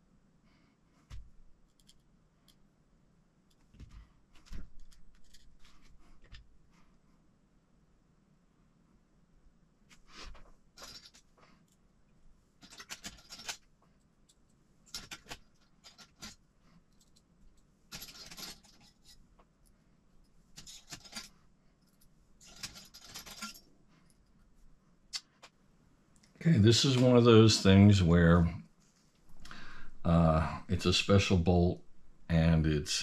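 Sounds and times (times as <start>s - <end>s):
small parts clicking: 1.6s - 2.6s, 10.8s - 11.8s, 12.6s - 19.8s, 20.6s - 24.4s.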